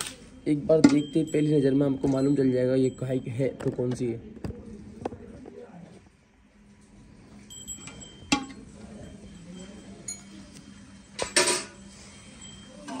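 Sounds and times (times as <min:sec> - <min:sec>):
metal pail clinking and knocking: 0:00.8 - 0:02.3, 0:07.7 - 0:08.6, 0:11.2 - 0:11.8.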